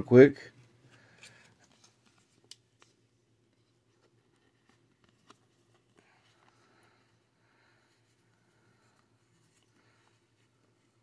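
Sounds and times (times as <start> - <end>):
trading cards rustling and clicking: 0.9 - 7.2.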